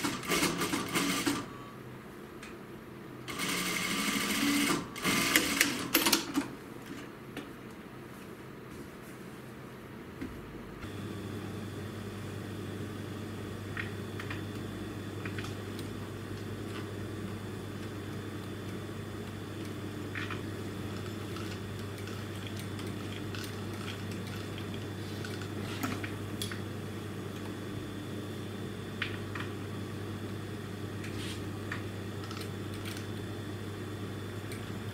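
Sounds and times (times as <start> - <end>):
sewing machine motor humming: 0.0 - 1.5, 3.3 - 6.0.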